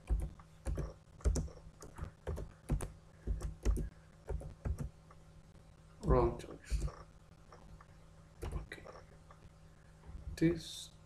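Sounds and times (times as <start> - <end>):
keyboard typing: 0.0 - 4.9, 6.7 - 7.0, 8.4 - 9.0.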